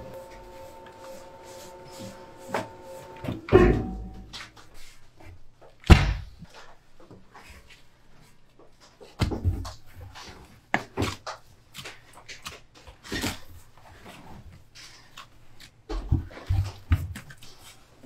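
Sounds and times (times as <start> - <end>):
dough slaps: 5.8 - 6.4
dough thudding in wooden box: 5.8 - 6.4.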